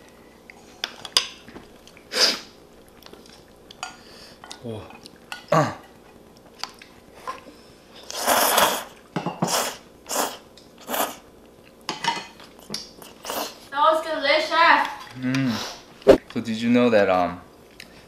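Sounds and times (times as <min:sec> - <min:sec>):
person slurping noodles: 0:08.0 - 0:11.2, 0:13.0 - 0:13.6.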